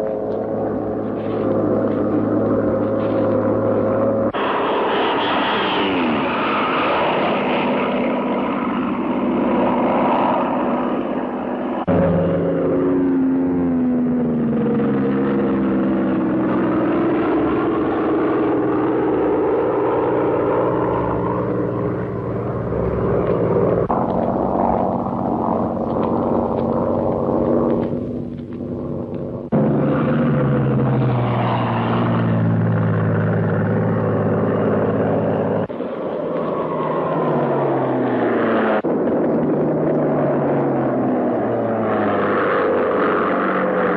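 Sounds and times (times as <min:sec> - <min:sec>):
propeller plane engine: 0:00.0 - 0:43.9.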